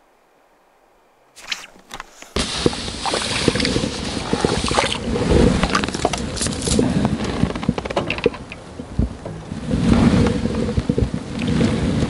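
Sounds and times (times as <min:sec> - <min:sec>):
microphone handling rustles and knocks: 0:01.4 - 0:12.0
wind buffeting microphone: 0:01.8 - 0:12.0.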